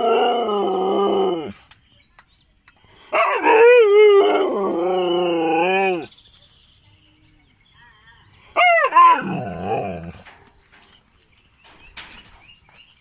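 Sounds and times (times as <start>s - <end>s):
dog howling: 3.2s - 6.1s, 8.6s - 10.2s.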